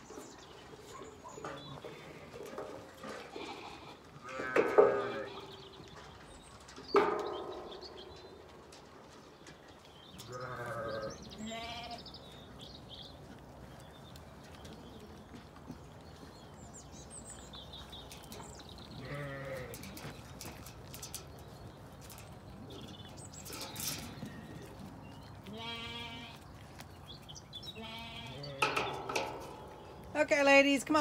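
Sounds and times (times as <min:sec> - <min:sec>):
high-pitched lamb bleat: 0:10.3 - 0:12.0, 0:25.5 - 0:26.4, 0:27.8 - 0:28.6
sheep bleating: 0:10.3 - 0:12.0, 0:25.5 - 0:26.4, 0:27.8 - 0:28.7.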